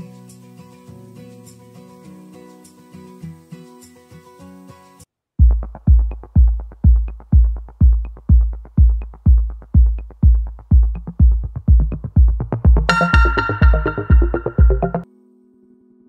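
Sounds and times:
heavy kick drum: 0:05.4 - 0:15.0
synth melody: 0:12.8 - 0:15.1.

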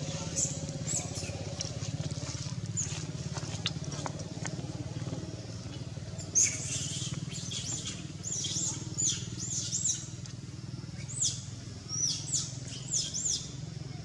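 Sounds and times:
steady low hum: 0:00.0 - 0:14.0
bird chirping: 0:05.6 - 0:10.2, 0:11.0 - 0:13.6.

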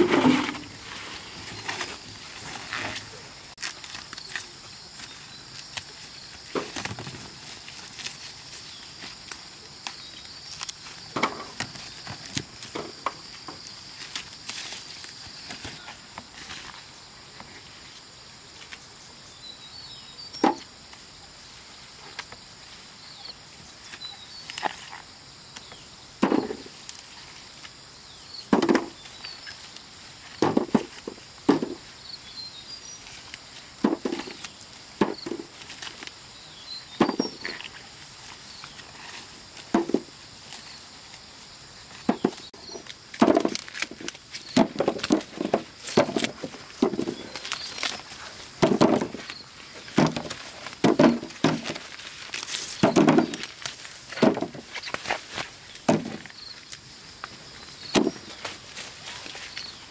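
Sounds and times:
insect buzz: 0:00.0 - 0:59.9.

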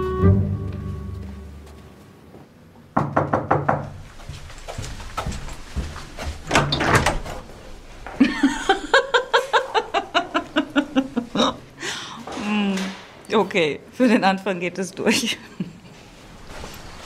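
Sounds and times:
knuckles knocking on wooden door: 0:03.0 - 0:03.9
person laughing: 0:08.2 - 0:11.6.

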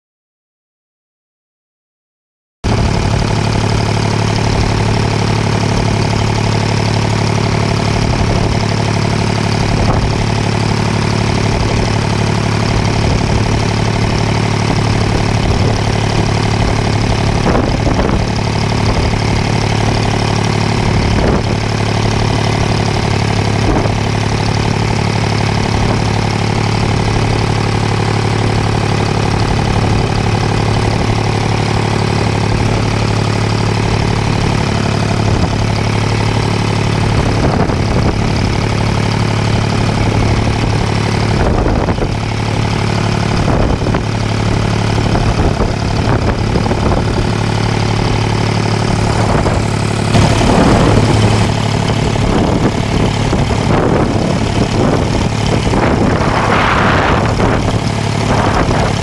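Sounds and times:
boat engine running: 0:02.6 - 0:59.0.

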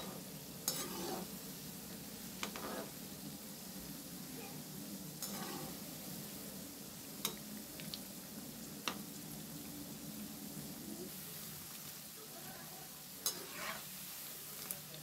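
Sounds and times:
deep-frying sizzle: 0:00.0 - 0:15.0.

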